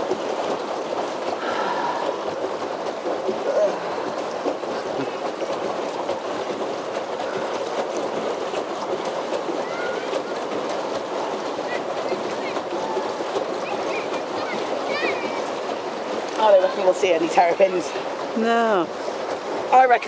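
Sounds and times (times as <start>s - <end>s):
outdoor background noise: 0.0s - 20.0s.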